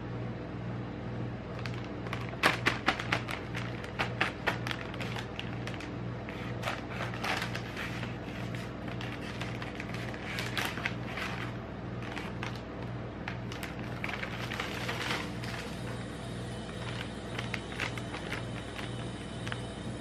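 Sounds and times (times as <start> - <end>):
low hum: 0.0 - 20.0
plastic bag crinkling: 1.5 - 19.8.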